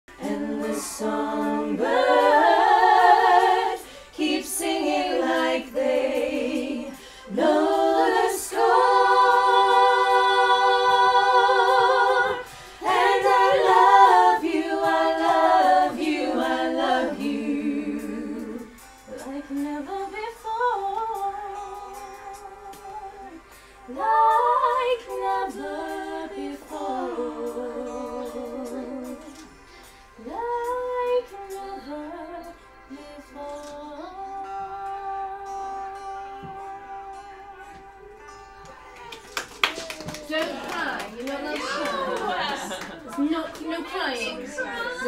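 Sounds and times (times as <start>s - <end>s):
women singing unaccompanied: 0.1s - 29.6s, 30.2s - 38.0s.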